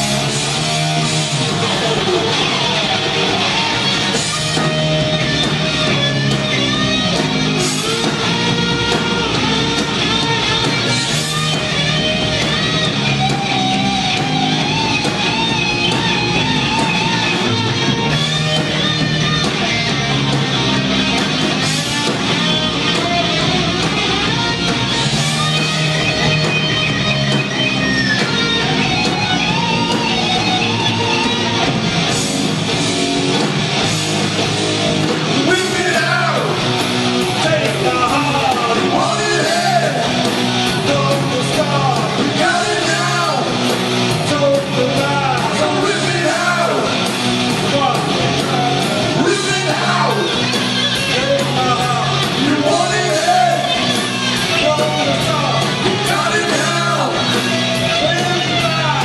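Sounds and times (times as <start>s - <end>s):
bending high guitar lead notes: 0.0s - 59.0s
hard rock band playing: 0.0s - 59.0s
person shouting singing: 35.4s - 36.6s, 37.4s - 43.6s, 44.3s - 47.0s, 49.2s - 50.4s, 51.1s - 53.9s, 54.5s - 57.3s.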